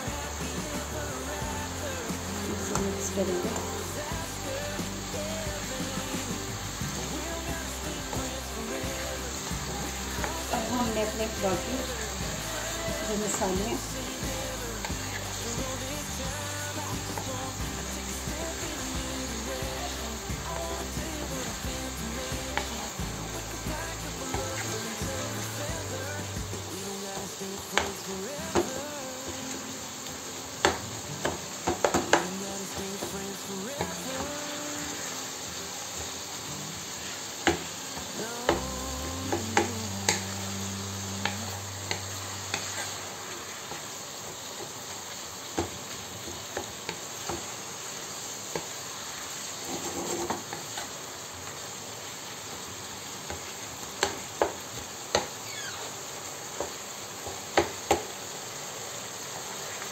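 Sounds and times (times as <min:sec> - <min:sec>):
chicken sizzling in a frying pan: 0:00.0 - 0:59.9
spatula scraping and knocking pan: 0:41.2 - 0:43.0, 0:49.6 - 0:50.9.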